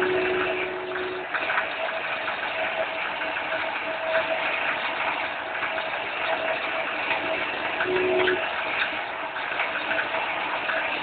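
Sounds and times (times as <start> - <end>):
faint whine: 0.0 - 5.1, 5.7 - 11.0
lathe machining metal: 0.0 - 11.0.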